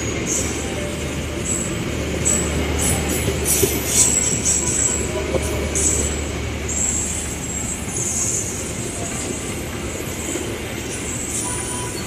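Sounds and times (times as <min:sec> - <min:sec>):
train wheels rolling on rails: 0:00.0 - 0:12.0
high-pitched wheel squeals: 0:10.9 - 0:12.0.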